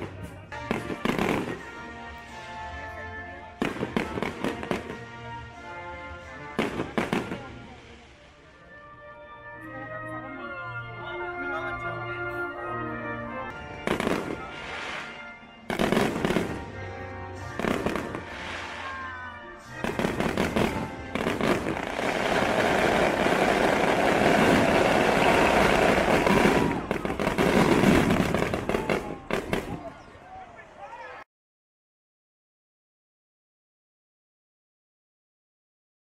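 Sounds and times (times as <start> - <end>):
fireworks bangs and crackle: 0.0 - 2.6, 3.5 - 5.4, 6.4 - 8.0, 13.7 - 30.0
music: 0.0 - 30.0.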